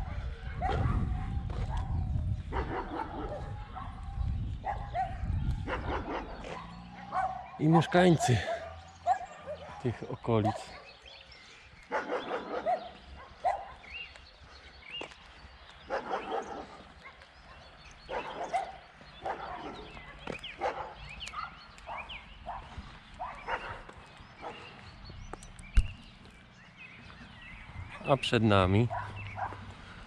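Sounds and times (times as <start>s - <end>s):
dog barking: 0.0s - 11.1s, 11.8s - 14.0s, 15.9s - 24.8s, 28.9s - 29.7s.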